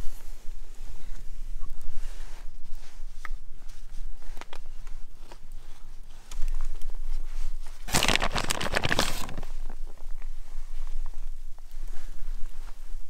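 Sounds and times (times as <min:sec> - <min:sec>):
plastic packaging crinkling: 0:07.8 - 0:10.0.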